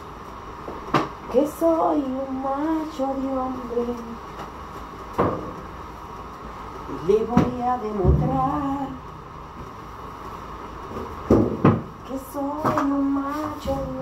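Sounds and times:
woman singing wordless phrase: 0:01.3 - 0:04.2, 0:07.0 - 0:09.1, 0:12.0 - 0:14.0.

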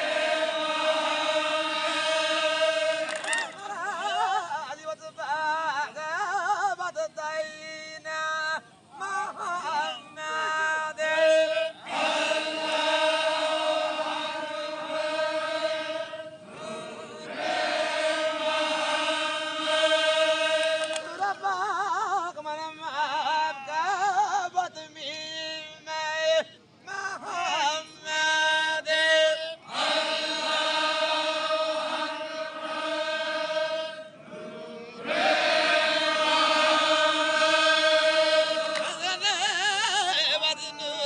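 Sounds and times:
men chanting sustained notes: 0:00.0 - 0:06.3, 0:08.2 - 0:24.0, 0:26.8 - 0:41.0
solo male voice chanting: 0:03.5 - 0:12.6, 0:21.0 - 0:30.4, 0:38.0 - 0:41.0.

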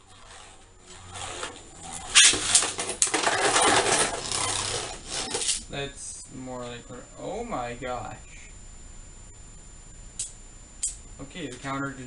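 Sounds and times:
tops clashing and scraping: 0:00.0 - 0:05.6
spinning tops whirring: 0:00.0 - 0:05.7.

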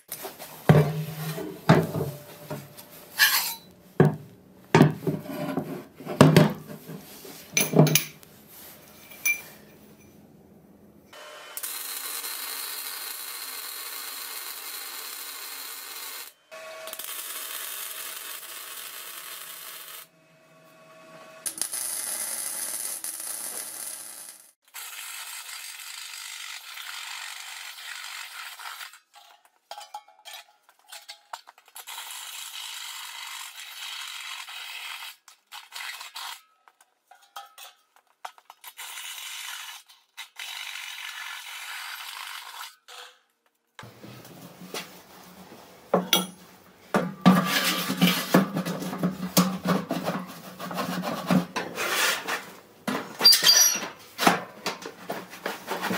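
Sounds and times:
metal knocks and clanks: 0:00.7 - 0:06.9, 0:47.0 - 0:51.8
welding crackling hiss: 0:11.6 - 0:16.3, 0:16.9 - 0:20.1.

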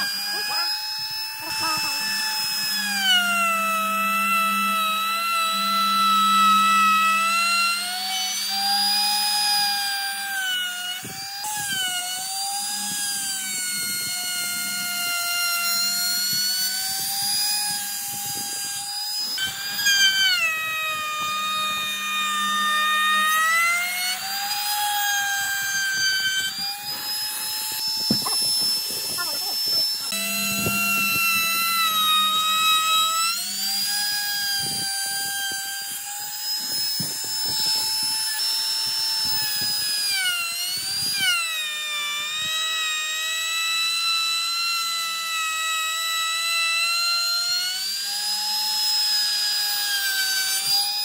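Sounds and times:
router cutting wood: 0:00.0 - 0:51.0.

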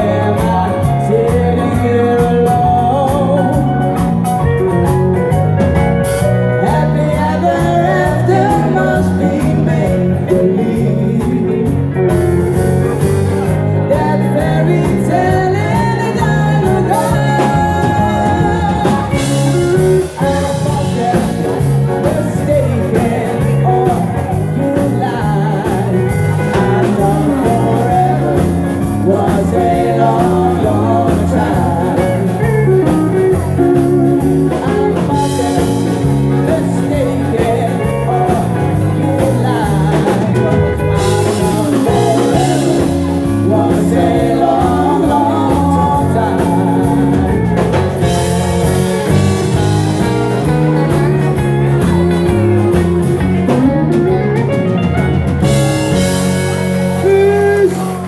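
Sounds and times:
live band playing rock song: 0:00.0 - 0:58.0
woman singing into a microphone: 0:13.9 - 0:21.6.

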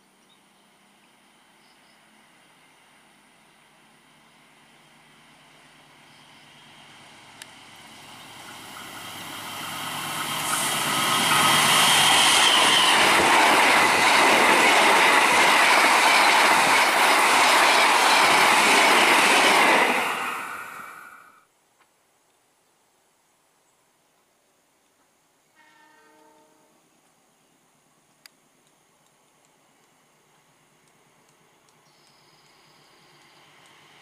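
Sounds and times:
diesel train approaching: 0:00.4 - 0:21.4, 0:30.3 - 0:34.0
train wheels rushing on rails: 0:02.0 - 0:21.3, 0:30.4 - 0:34.0.

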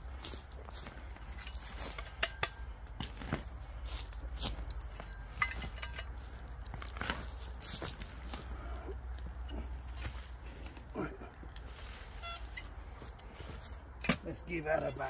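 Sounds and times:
spade crunching through soil and roots: 0:00.0 - 0:15.0
spade blade clicking and scraping: 0:01.2 - 0:03.2, 0:04.6 - 0:06.3.

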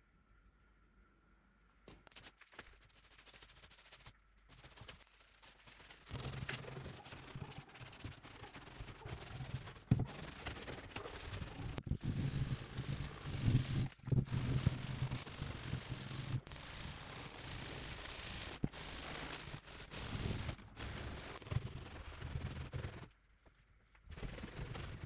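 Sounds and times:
cloth rag rubbing wood: 0:02.2 - 0:21.4.

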